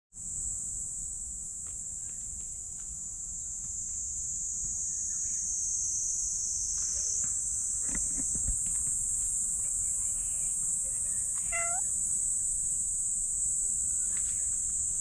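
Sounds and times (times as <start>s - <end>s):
insects shrilling: 11.2s - 11.9s.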